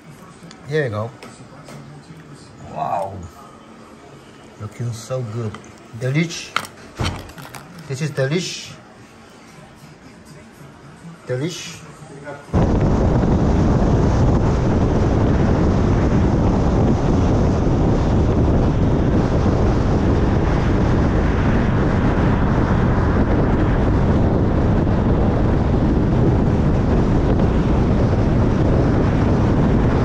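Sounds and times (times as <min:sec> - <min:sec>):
wind and road noise: 0:12.5 - 0:30.0
wind buffeting microphone: 0:12.5 - 0:30.0.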